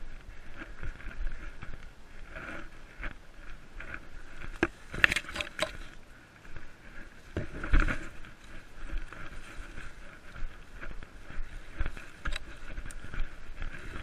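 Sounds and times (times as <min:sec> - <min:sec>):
plants rustling and swishing: 0:00.0 - 0:14.0
twigs crackling: 0:00.0 - 0:14.0
running footfalls: 0:06.5 - 0:14.0.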